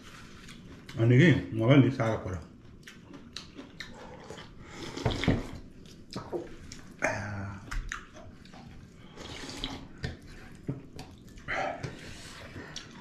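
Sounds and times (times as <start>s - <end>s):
soup slurping: 9.2s - 10.0s.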